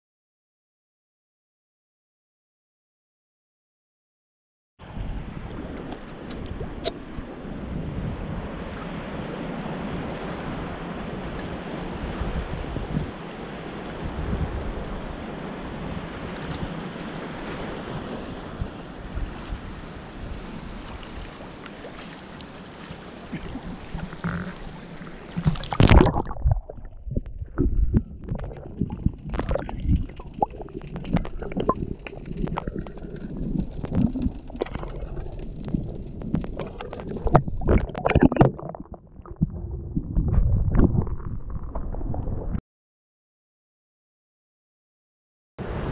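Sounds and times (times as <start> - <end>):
rushing wind and water: 4.8 - 42.6, 45.6 - 45.9
underwater gurgles and knocks: 5.5 - 7.2, 16.2 - 16.8, 17.4 - 42.6.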